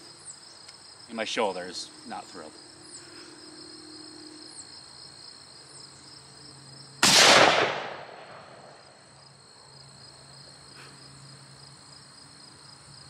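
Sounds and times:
high insect chorus: 0.0s - 13.0s
rifle shot: 7.0s - 8.8s.

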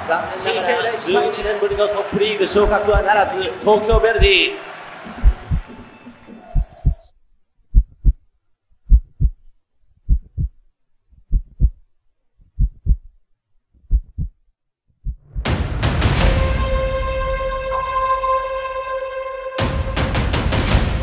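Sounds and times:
heartbeat thumps: 2.6s - 3.1s, 3.9s - 4.4s, 5.1s - 5.8s, 6.5s - 7.1s, 7.7s - 8.2s, 8.9s - 9.5s, 10.1s - 10.6s, 11.2s - 11.8s, 12.5s - 13.1s, 13.8s - 14.4s, 15.0s - 15.5s
loud music: 15.5s - 21.0s.

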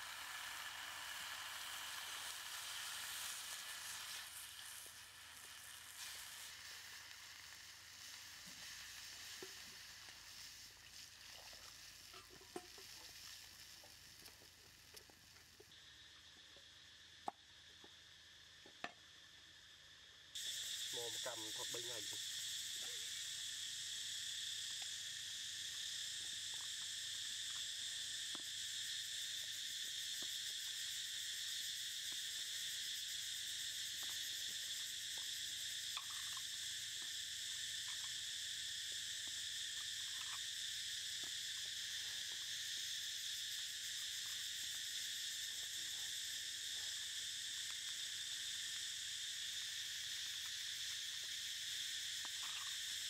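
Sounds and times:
high-pitched insect chorus: 0.0s - 53.0s.

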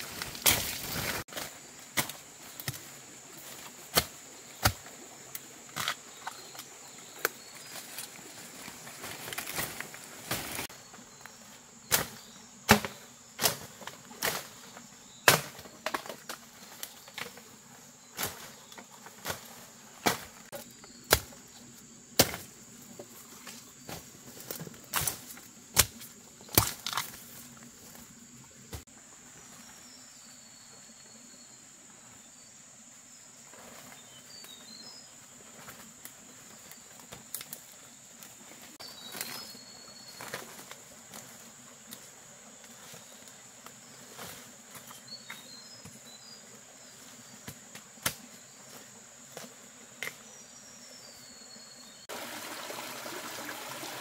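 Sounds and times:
sharp chopping knocks: 12.7s - 13.0s.

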